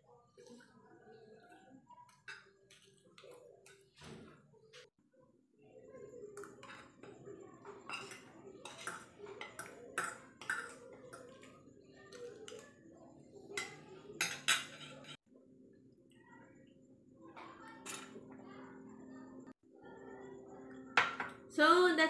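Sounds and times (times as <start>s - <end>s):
cutlery clinking on plates: 2.0s - 4.9s, 6.4s - 12.8s, 13.5s - 15.2s, 17.4s - 18.4s, 21.0s - 21.5s.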